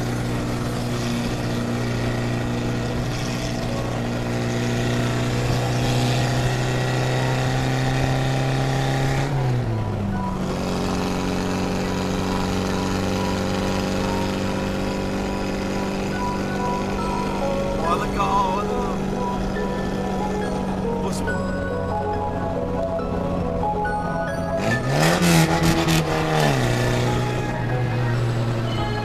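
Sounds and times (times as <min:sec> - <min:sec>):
car engine running: 0:00.0 - 0:29.0
road and wind noise: 0:00.0 - 0:29.0.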